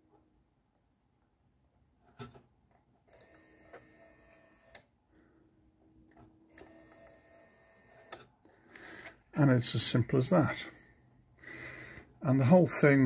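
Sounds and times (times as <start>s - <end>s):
small motor whirring faintly: 3.1s - 4.9s, 6.5s - 8.2s.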